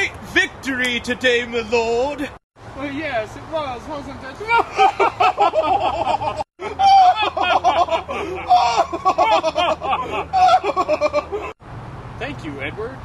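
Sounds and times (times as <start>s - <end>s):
man laughing heartily: 4.5s - 11.6s.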